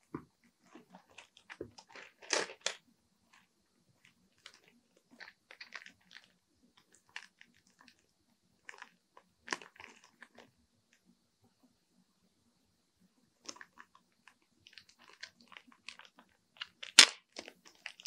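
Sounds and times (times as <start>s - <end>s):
plastic wrapper crinkling: 0.8s - 2.8s, 14.7s - 18.0s.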